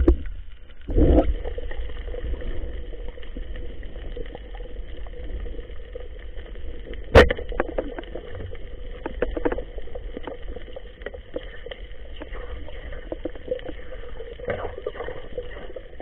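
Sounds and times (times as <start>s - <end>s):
muffled underwater clicks and knocks: 0.0s - 1.4s, 6.9s - 16.0s
faint steady hum: 0.0s - 16.0s
low underwater rumble: 0.0s - 16.0s.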